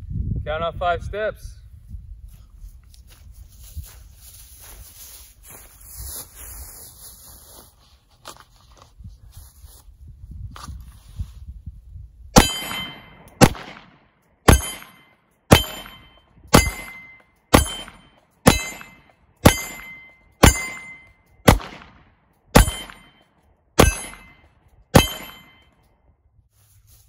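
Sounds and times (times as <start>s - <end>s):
metallic ring of steel plate: 12.4s - 13.4s, 14.5s - 21.3s, 22.6s - 25.8s
pistol shots: 12.4s - 23.2s, 23.8s - 25.6s.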